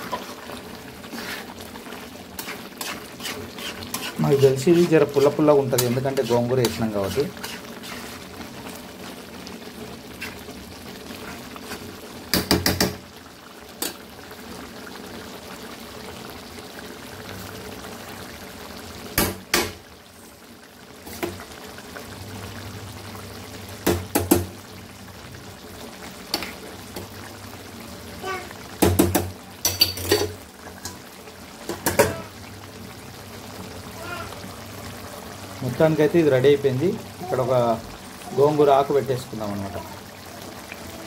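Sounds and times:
curry simmering and bubbling: 0.0 - 41.0
metal clattering against pan: 28.8 - 31.0.

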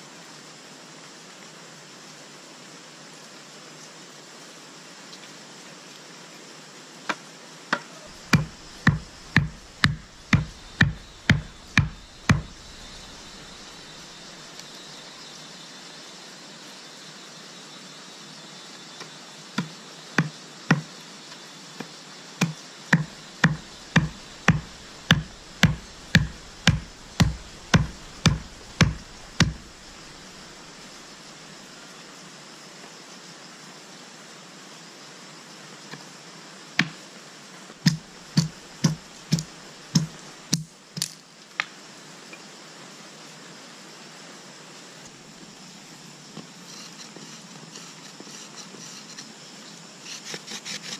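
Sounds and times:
stone knocking on wooden stick: 8.1 - 13.9, 23.0 - 30.6, 37.9 - 40.2.

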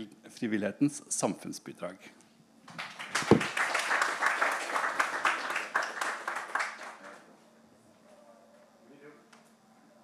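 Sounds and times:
audience applauding: 2.7 - 7.2.

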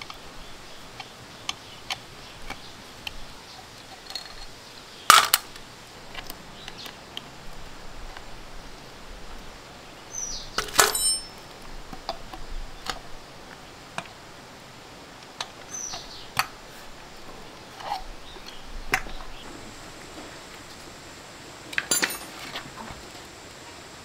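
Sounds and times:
metal tools clinking: 3.9 - 5.5, 10.6 - 11.4, 21.8 - 22.7
ringing metallic clank: 10.6 - 11.4, 21.9 - 22.4.

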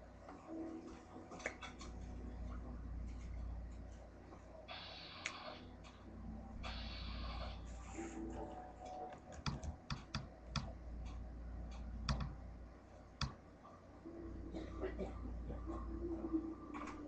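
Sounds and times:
steady low hum: 0.0 - 17.0
computer keys clicking: 8.9 - 12.4.

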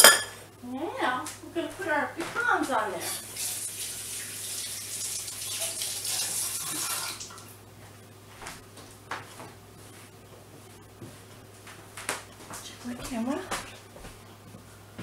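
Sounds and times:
faucet running over hands: 3.0 - 7.5.

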